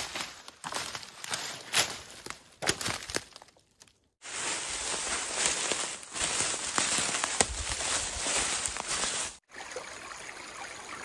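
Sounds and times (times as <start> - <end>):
footsteps crunching through leaves: 0.0 - 3.5, 4.2 - 9.5
dry leaves and twigs crackling: 0.0 - 9.4.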